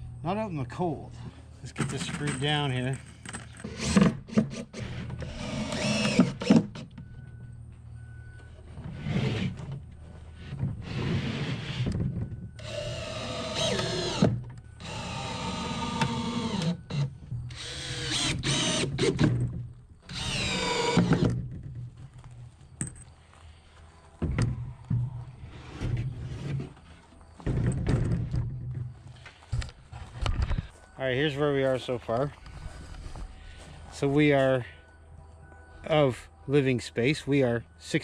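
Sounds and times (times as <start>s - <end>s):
cordless drill driving screws: 3.6s - 6.8s, 12.6s - 19.2s, 20.1s - 21.4s.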